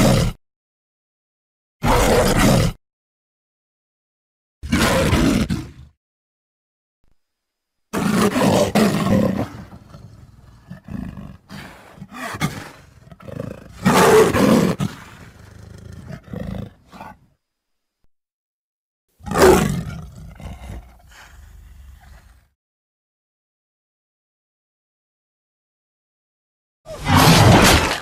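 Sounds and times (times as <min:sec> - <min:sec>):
creature roaring: 0:00.0 - 0:00.4, 0:01.8 - 0:02.8, 0:04.6 - 0:05.9, 0:08.0 - 0:17.2, 0:19.2 - 0:22.5, 0:26.9 - 0:28.0.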